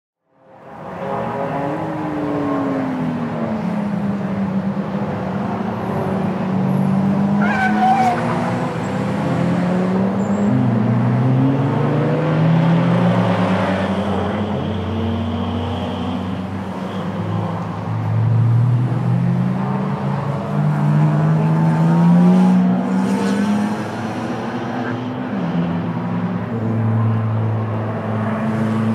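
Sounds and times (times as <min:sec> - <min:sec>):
race car engines: 0:00.3 - 0:28.9
tyre squeal: 0:07.4 - 0:08.4.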